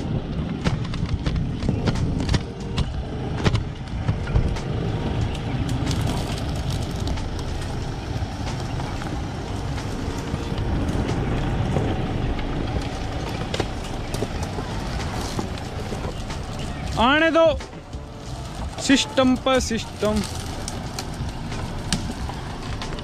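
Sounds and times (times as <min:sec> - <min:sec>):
off-road vehicle engines at low revs: 0:00.0 - 0:23.0
stones crunching under tyres: 0:00.0 - 0:23.0.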